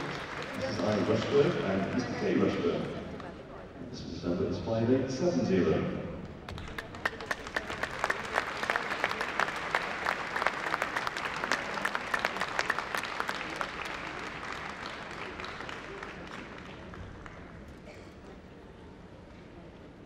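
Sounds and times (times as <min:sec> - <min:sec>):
audience applauding: 0:00.0 - 0:02.9, 0:06.4 - 0:17.9.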